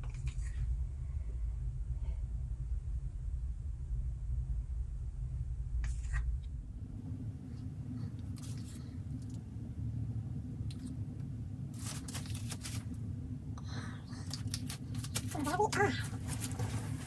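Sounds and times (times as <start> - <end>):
low hum: 0.0 - 17.0
rustles and taps on plastic sheets: 14.3 - 17.0.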